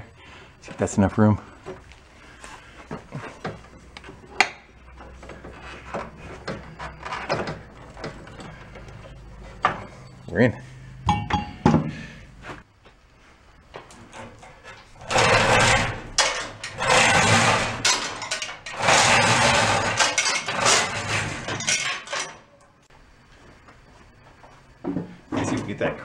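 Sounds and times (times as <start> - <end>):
chain rattling through hoist: 15.0 - 22.4.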